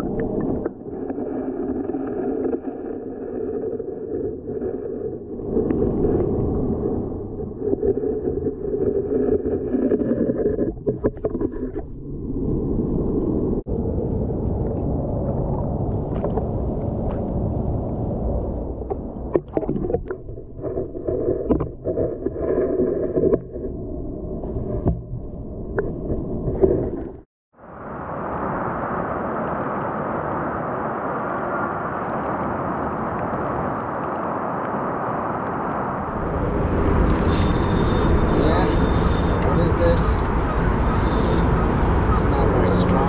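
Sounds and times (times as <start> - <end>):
muffled underwater rush: 0.0 - 43.0
knocks and splashes: 18.8 - 23.5.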